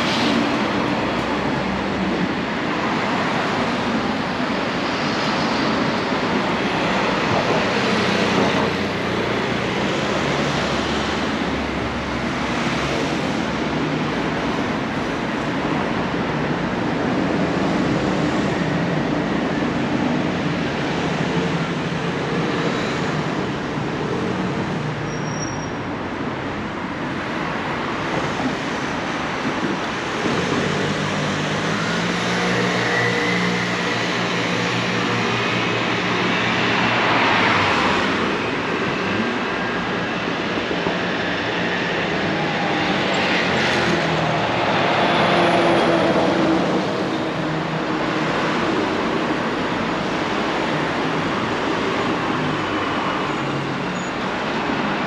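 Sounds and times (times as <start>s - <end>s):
passing vehicles: 0.0s - 55.0s.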